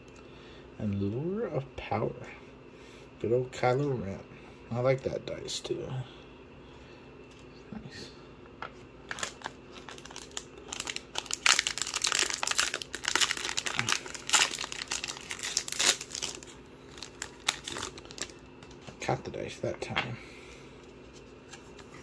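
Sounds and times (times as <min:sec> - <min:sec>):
wrapper crinkling and tearing: 0:09.1 - 0:18.4.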